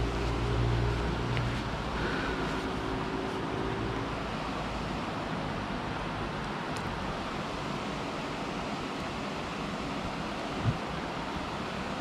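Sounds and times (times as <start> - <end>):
river water rushing: 0.0 - 12.0
wind rumble on microphone: 10.1 - 11.6.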